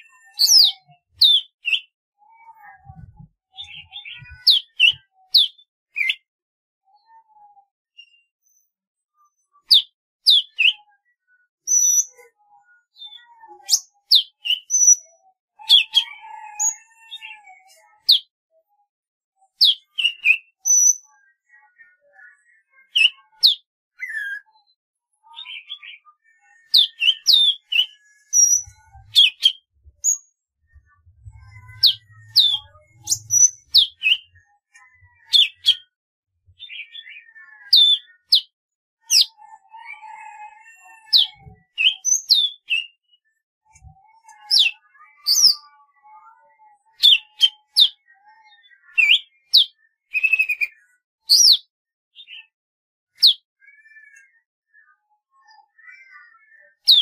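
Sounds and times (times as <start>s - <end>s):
bird singing whistled notes: 41.2s - 43.1s.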